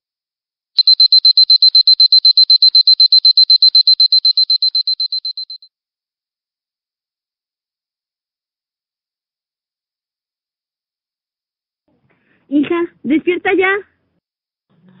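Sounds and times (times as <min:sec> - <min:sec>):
alarm clock beeping: 0:00.8 - 0:05.7.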